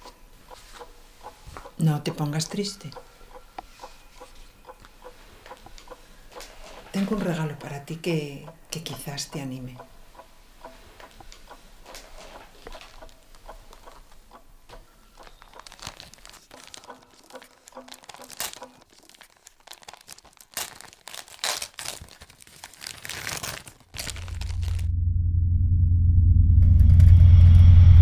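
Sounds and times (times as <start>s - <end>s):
wrapping paper tearing and crinkling: 15.2s - 24.9s
loud low rumble: 24.0s - 28.0s.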